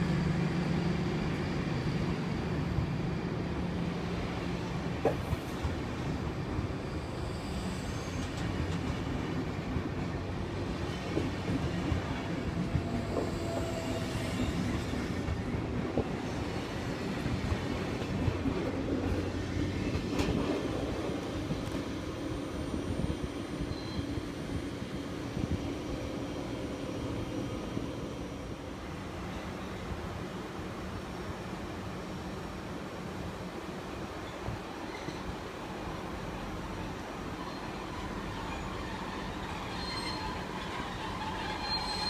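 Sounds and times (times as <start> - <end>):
train rumble: 0.0 - 42.0
faint wheel squeals: 37.4 - 42.0.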